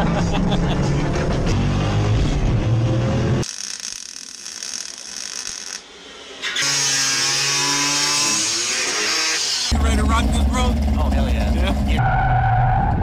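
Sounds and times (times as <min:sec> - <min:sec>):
loud car engine: 0:00.0 - 0:03.5, 0:05.8 - 0:13.0
angle grinder on sheet metal: 0:03.4 - 0:09.8.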